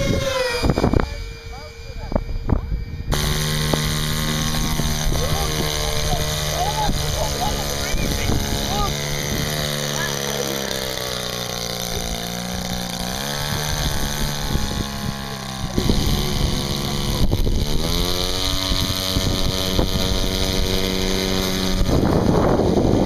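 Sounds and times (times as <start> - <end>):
model plane engine and propeller: 0.0 - 23.0
wind buffeting microphone: 0.0 - 23.0.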